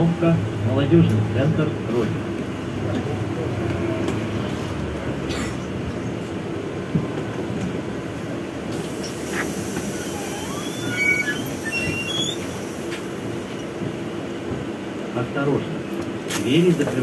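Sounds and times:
street traffic: 0.0 - 17.0
trolleybus interior hum: 0.0 - 17.0.

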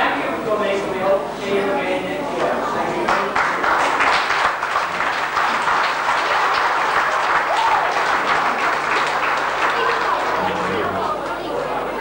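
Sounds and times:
audience applauding: 3.1 - 11.5.

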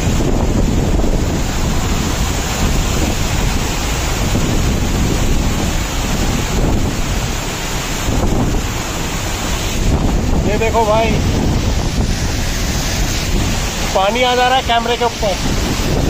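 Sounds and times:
waterfall rushing: 0.0 - 16.0
wind buffeting microphone: 0.0 - 16.0.

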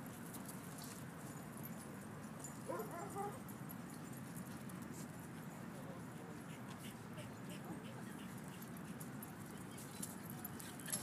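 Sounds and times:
dog yipping: 2.7 - 3.4.

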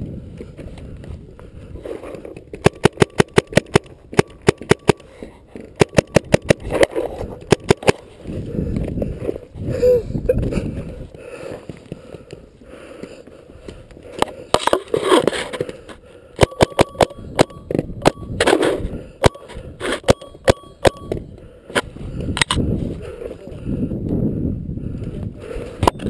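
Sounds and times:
paintball markers popping: 2.5 - 8.0.

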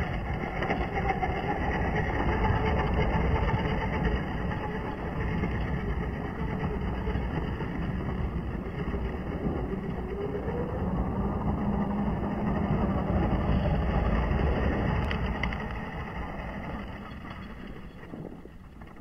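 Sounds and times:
rc car motor rumble: 0.0 - 19.0.

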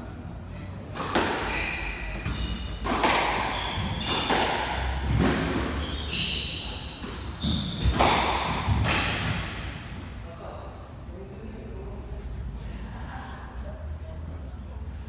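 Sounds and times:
squash ball hitting rackets and walls: 0.9 - 10.1
shoes squeaking on wooden floor: 3.4 - 8.0.

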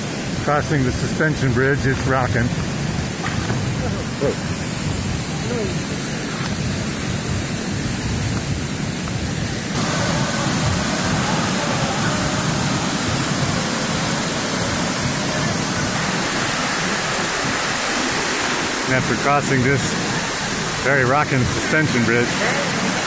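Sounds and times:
waterfall rushing: 0.0 - 23.0.

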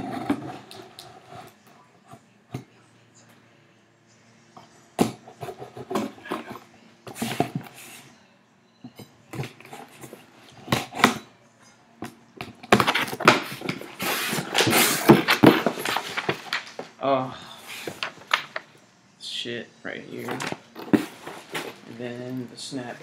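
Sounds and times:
cardboard scraping and rustling: 12.7 - 16.9, 20.2 - 22.2.

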